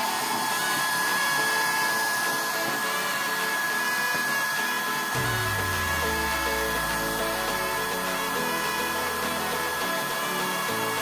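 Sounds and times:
blower fan whining: 0.0s - 10.8s
background music with bass line: 5.2s - 9.8s.

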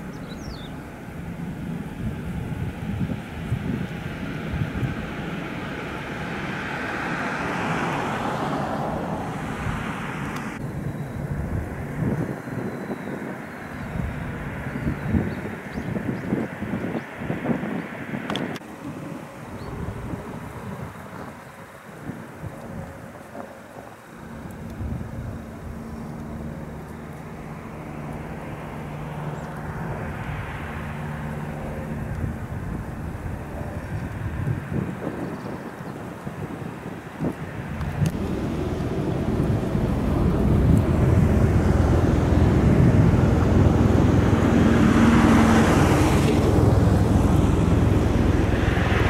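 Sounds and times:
distant engine drone: 0.0s - 49.0s
distant vehicles rumbling: 0.0s - 49.0s
wind buffeting microphone: 0.0s - 49.0s
rushing noise: 36.6s - 49.0s.

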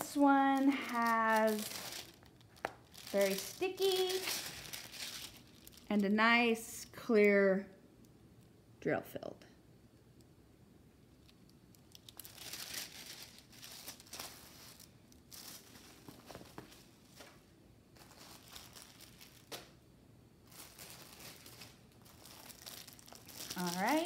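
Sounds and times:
plastic film rustling and crinkling: 0.0s - 6.2s, 11.2s - 19.8s, 20.4s - 24.0s.

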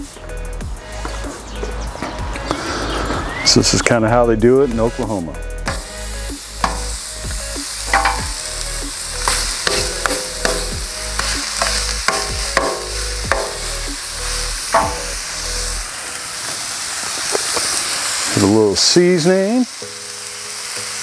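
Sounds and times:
patties sizzling on griddle: 0.0s - 3.1s, 3.8s - 21.0s
metal spatula clanking: 6.6s - 7.0s, 7.9s - 8.6s, 9.2s - 13.9s, 14.7s - 15.3s.

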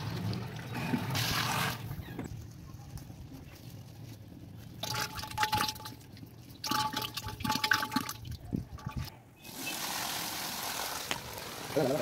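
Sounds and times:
water draining through cloth: 4.8s - 9.8s.

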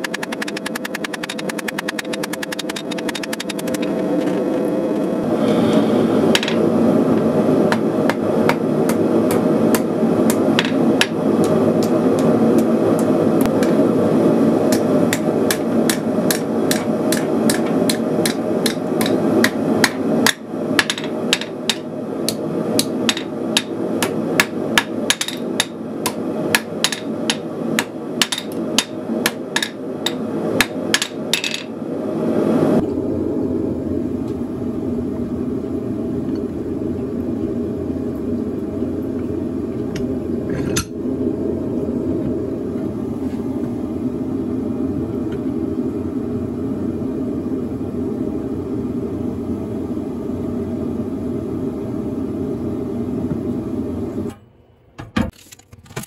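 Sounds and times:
gas forge burner roar: 0.0s - 54.4s
hammer striking hot metal on anvil: 14.7s - 31.7s.

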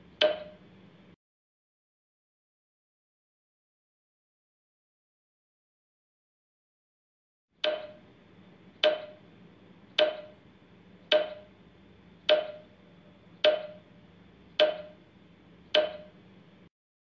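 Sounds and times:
timer ticking with ring: 0.0s - 0.6s, 7.6s - 8.1s, 8.8s - 9.3s, 9.9s - 10.5s, 11.1s - 11.6s, 12.2s - 15.1s, 15.7s - 16.2s.

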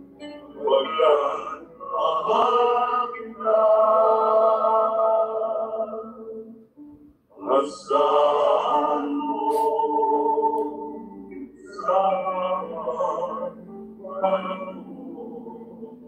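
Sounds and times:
men singing together: 0.7s - 6.2s, 7.4s - 11.0s.

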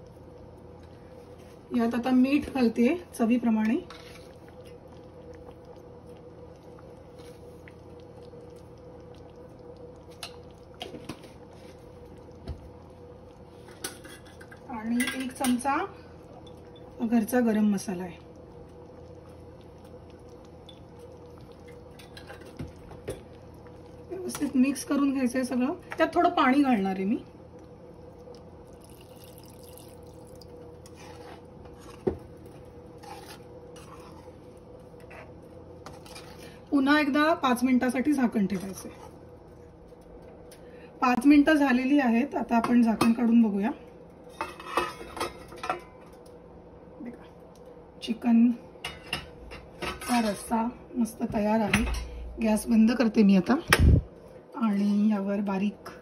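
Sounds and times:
curry bubbling and popping: 0.0s - 48.2s
steady low hum: 0.0s - 56.0s
spoon stirring and scraping: 3.6s - 5.0s, 13.3s - 17.0s, 18.5s - 24.6s, 30.8s - 36.6s, 44.3s - 45.9s, 48.8s - 50.6s
water pouring into pan: 28.6s - 30.6s.

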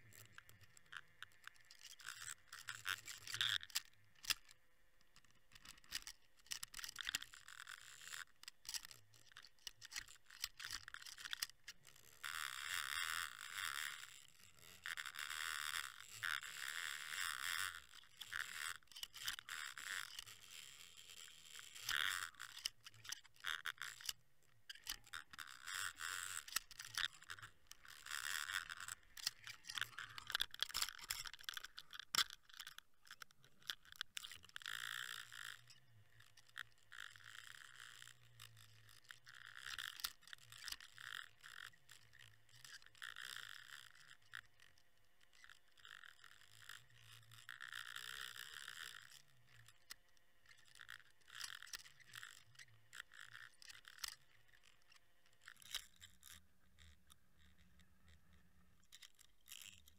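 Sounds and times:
underwater clicks scrapes and rattles: 0.0s - 59.9s.

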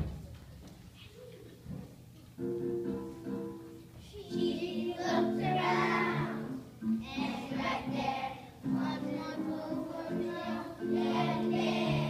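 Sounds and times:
young children singing: 4.0s - 12.0s.

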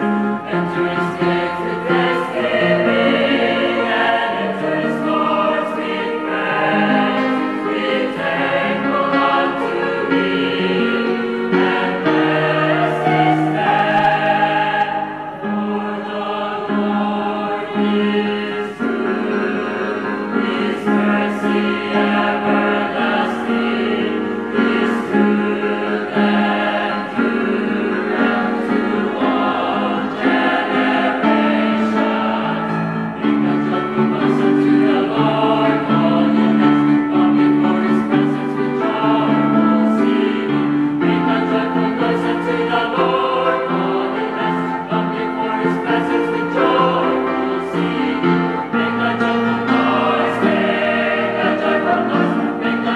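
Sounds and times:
mixed choir singing: 0.0s - 52.9s.

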